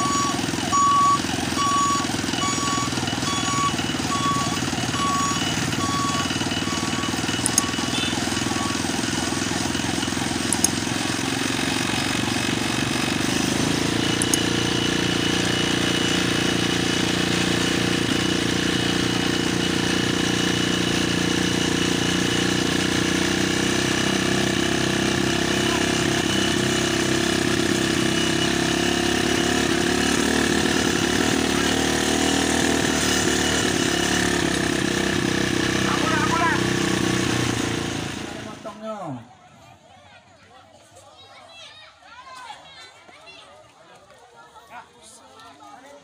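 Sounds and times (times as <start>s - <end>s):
short electronic beeps: 0.0s - 9.1s
deep engine hum: 0.0s - 38.6s
motorcycle engine and road noise: 0.0s - 39.9s
sharp clicks: 6.8s - 7.9s, 10.4s - 11.0s, 14.1s - 14.6s.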